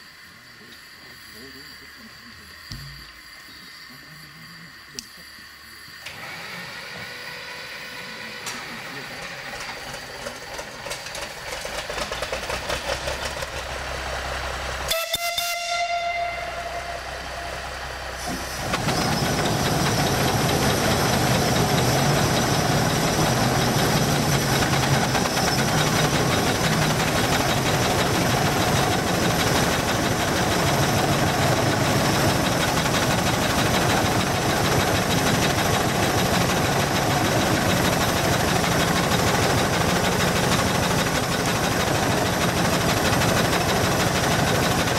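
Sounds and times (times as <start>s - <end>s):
steam engine running: 0.0s - 44.9s
steam whistle blast: 14.9s - 18.5s.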